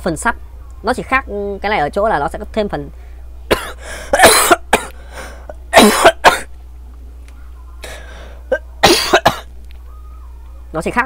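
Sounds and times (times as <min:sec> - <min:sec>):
man coughing: 0:03.5 - 0:05.0, 0:05.7 - 0:06.5, 0:07.9 - 0:09.5.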